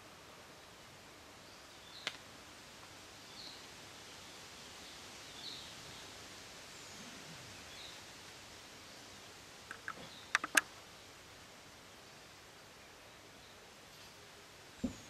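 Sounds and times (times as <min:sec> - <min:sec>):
faint background hiss: 0:00.0 - 0:15.0
sharp click: 0:09.7 - 0:10.7
small bird chirping: 0:09.7 - 0:10.8.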